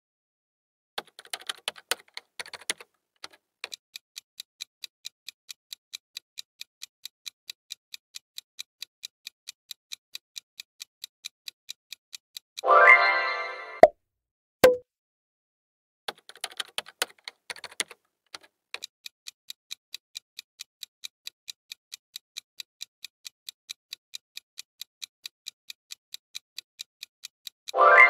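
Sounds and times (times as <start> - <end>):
countdown timer ticking: 12.4 - 13.9, 20.4 - 28.0
short pop: 14.6 - 14.8
chime: 27.8 - 28.0.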